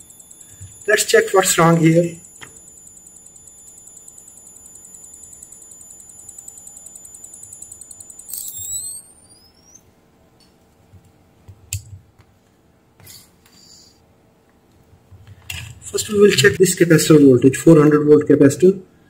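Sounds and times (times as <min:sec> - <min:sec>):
high-pitched pulsing electronic whine: 0:00.0 - 0:09.9.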